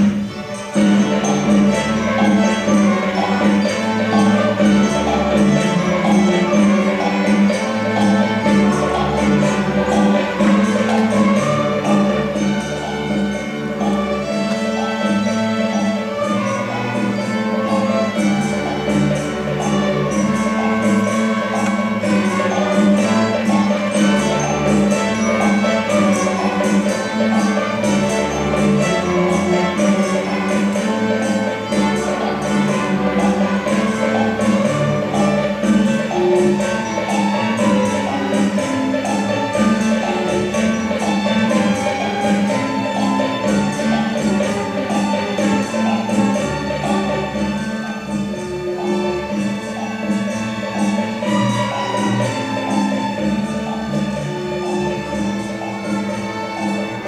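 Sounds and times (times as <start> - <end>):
string orchestra playing: 0.0 - 57.0.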